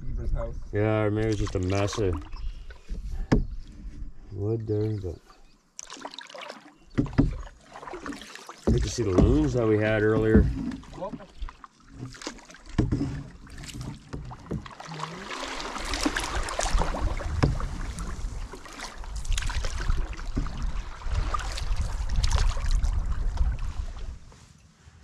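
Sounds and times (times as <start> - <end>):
wind rumble on microphone: 0.0 - 1.4, 16.2 - 24.4
paddle splashing in water: 1.3 - 4.1, 5.3 - 24.3.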